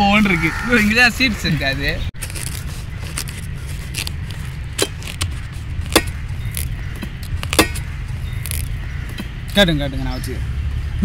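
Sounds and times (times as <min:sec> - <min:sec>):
knife cutting watermelon: 0:02.2 - 0:08.8.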